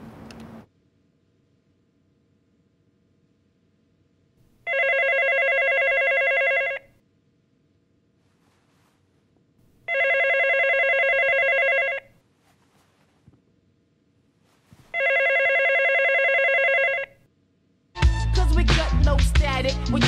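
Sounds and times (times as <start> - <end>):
telephone ringing: 4.6 - 7.0, 9.9 - 12.2, 14.9 - 17.3.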